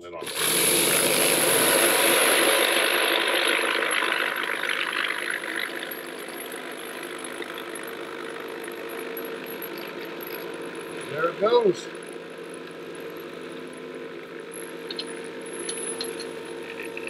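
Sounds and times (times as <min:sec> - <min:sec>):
vibratory tumbler humming: 0:00.0 - 0:17.0
brass cases rattling in tumbler: 0:05.3 - 0:17.0.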